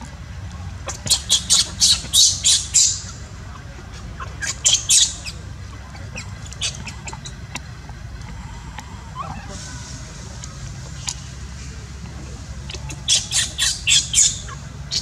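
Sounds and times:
baby monkey screeching: 0:01.1 - 0:03.1, 0:04.4 - 0:05.4, 0:12.7 - 0:15.0.

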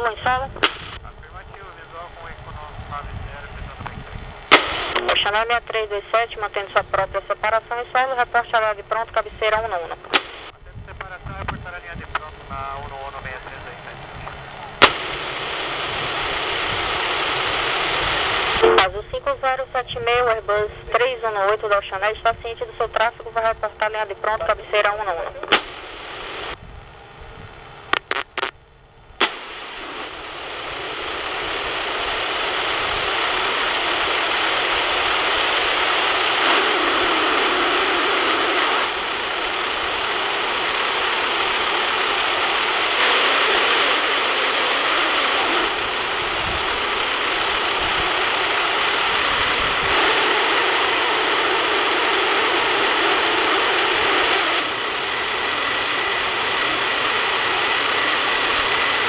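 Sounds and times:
jet engines spooling up: 0:29.4 - 0:59.0.

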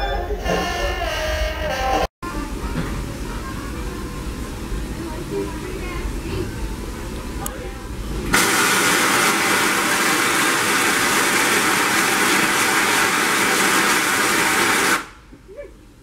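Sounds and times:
steam locomotive venting hiss: 0:08.0 - 0:15.3.

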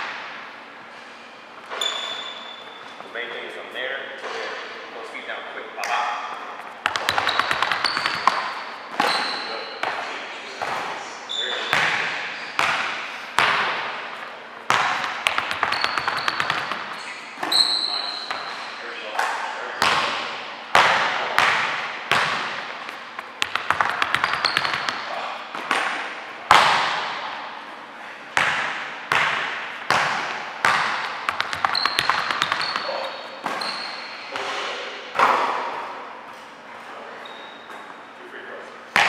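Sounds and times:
sneaker squeaks: 0:01.6 - 0:03.2, 0:06.6 - 0:12.7, 0:14.9 - 0:19.2, 0:22.2 - 0:25.9, 0:30.8 - 0:35.3, 0:36.4 - 0:38.1
basketball bouncing on gym floor: 0:06.8 - 0:10.9, 0:11.6 - 0:13.9, 0:14.7 - 0:18.7, 0:19.8 - 0:27.4, 0:28.3 - 0:34.6.

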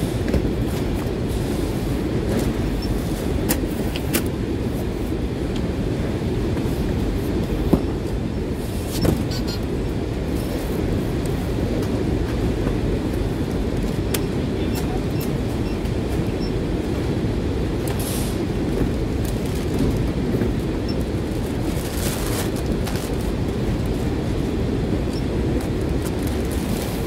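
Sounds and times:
machinery rumble: 0:00.0 - 0:27.0.

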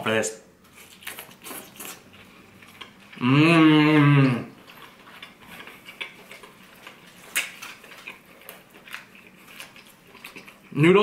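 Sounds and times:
person humming mmm: 0:03.2 - 0:04.6.

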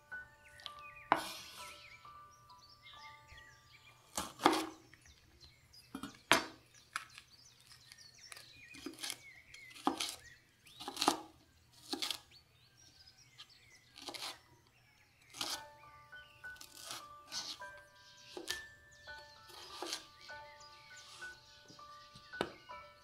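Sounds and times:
knife chopping on wooden board: 0:01.1 - 0:01.6, 0:04.1 - 0:04.8, 0:08.3 - 0:10.2, 0:10.8 - 0:12.2, 0:14.0 - 0:14.4, 0:15.3 - 0:15.7, 0:16.6 - 0:17.6, 0:18.3 - 0:18.6, 0:19.4 - 0:20.1, 0:22.2 - 0:22.7.

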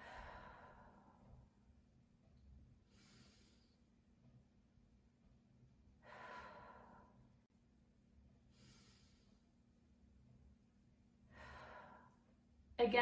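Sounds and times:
woman breathing deeply: 0:00.0 - 0:01.7, 0:02.8 - 0:03.9, 0:05.9 - 0:07.5, 0:08.4 - 0:09.6, 0:11.2 - 0:12.5.

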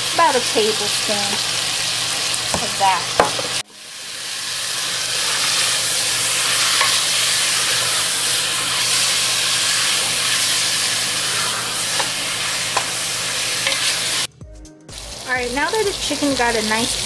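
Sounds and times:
chicken sizzling in oil: 0:00.0 - 0:14.3, 0:14.9 - 0:17.0.

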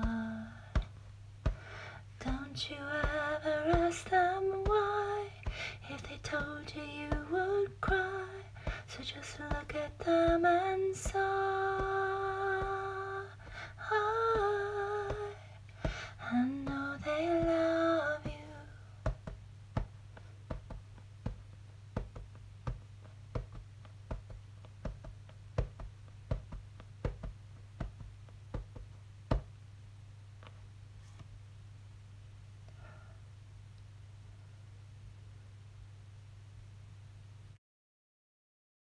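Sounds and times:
woman humming: 0:00.0 - 0:00.9, 0:02.2 - 0:15.6
low electrical hum: 0:00.0 - 0:37.6.

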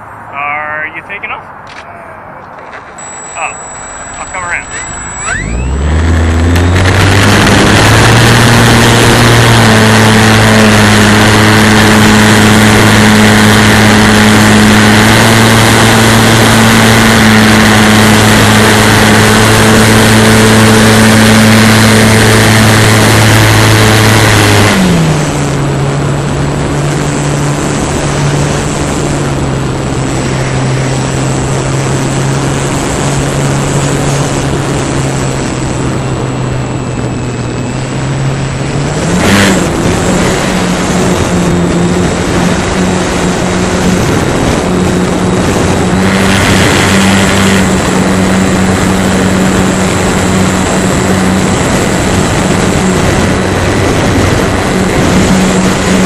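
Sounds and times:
model airplane motor droning: 0:03.0 - 0:24.8
wind rush: 0:05.7 - 0:56.0.

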